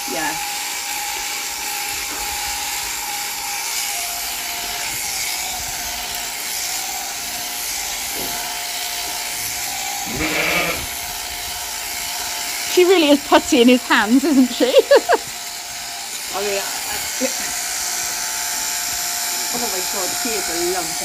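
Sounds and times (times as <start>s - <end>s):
sheep shears running: 0.4s - 21.0s
sheep bleating: 10.0s - 11.0s.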